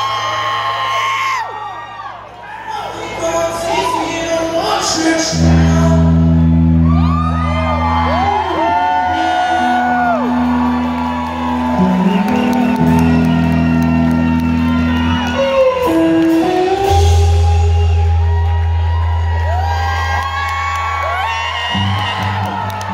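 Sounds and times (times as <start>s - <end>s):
audience whooping and shouting: 0.0s - 22.9s
rock band playing: 4.8s - 22.9s
sustained low bass: 5.3s - 8.8s, 9.7s - 22.9s.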